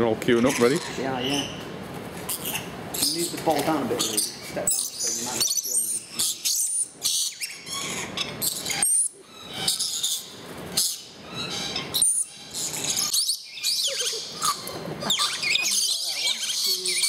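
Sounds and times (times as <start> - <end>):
shrill bird chirps and squeals: 0.4 - 1.6, 2.3 - 17.0
birds flapping wings: 1.6 - 4.0.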